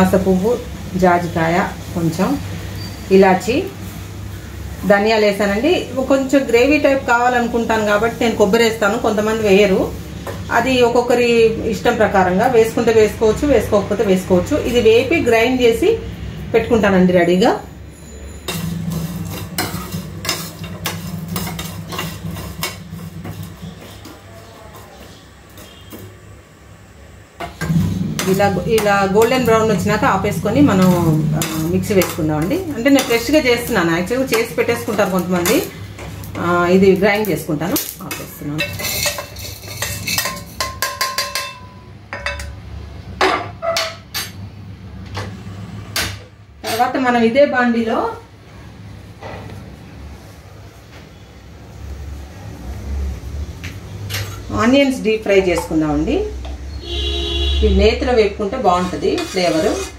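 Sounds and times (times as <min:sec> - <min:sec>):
spatula scraping spices in pan: 0:17.9 - 0:26.2, 0:28.2 - 0:41.3, 0:58.4 - 0:59.9.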